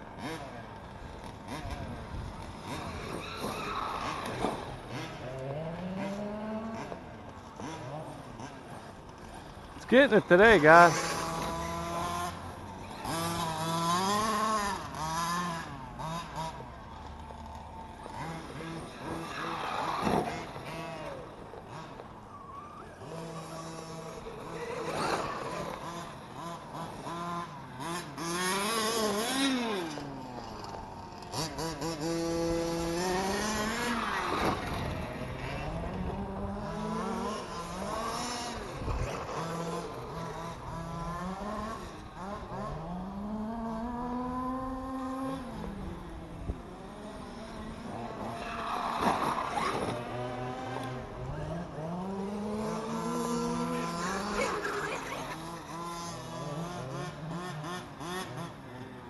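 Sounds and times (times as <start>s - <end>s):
rc truck motors revving: 0.0s - 59.0s.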